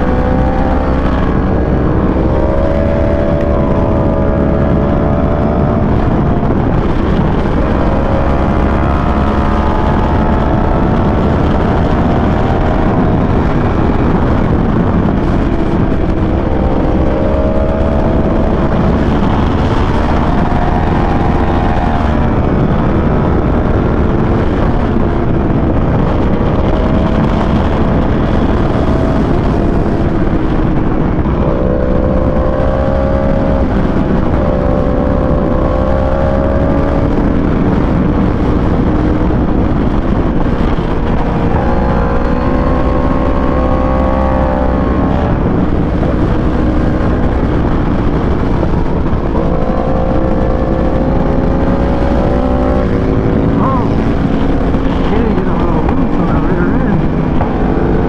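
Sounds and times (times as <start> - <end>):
motorcycle engine revving: 0.0 - 58.0
wind and road noise: 0.0 - 58.0.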